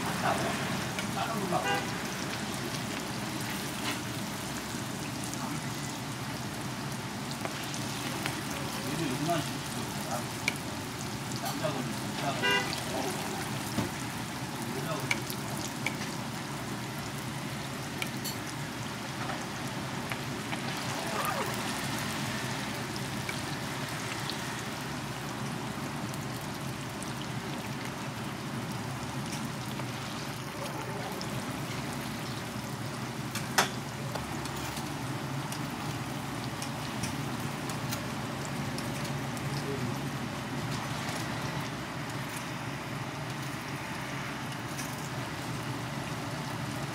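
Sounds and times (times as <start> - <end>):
pancakes sizzling in oil: 0.0 - 46.9.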